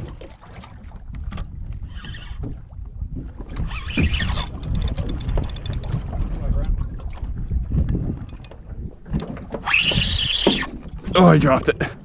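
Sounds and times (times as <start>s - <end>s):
wind and water against hull: 0.0s - 12.0s
fishing reel clicking rapidly: 3.9s - 6.0s.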